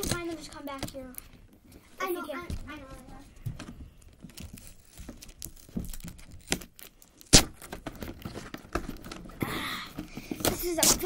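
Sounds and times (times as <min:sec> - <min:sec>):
rustling: 0:00.0 - 0:11.0.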